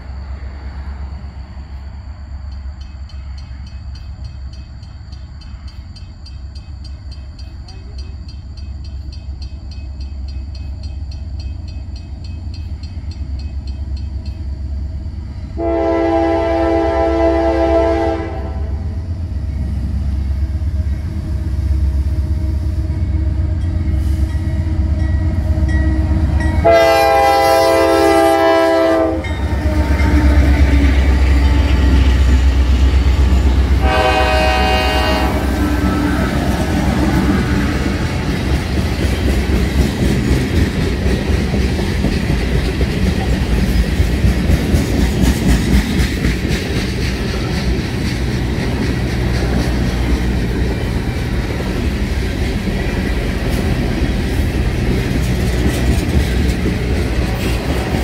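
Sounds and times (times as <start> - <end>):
locomotive rumble: 0.0 - 58.0
locomotive air horn blasts: 15.6 - 18.9, 25.9 - 30.9, 33.7 - 37.8.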